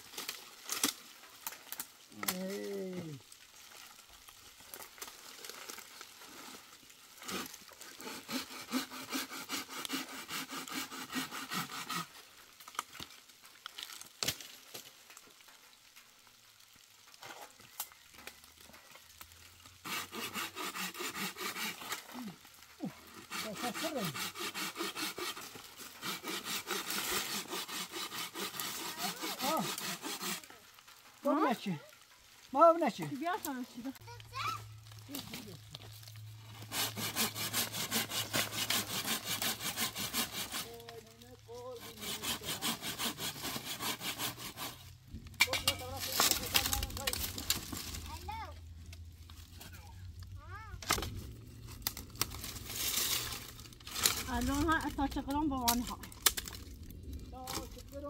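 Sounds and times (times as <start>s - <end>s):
hand saw cutting branch: 7.2s - 12.3s, 19.8s - 30.6s, 36.4s - 49.9s, 50.8s - 51.1s, 51.7s - 56.6s, 57.4s - 57.9s.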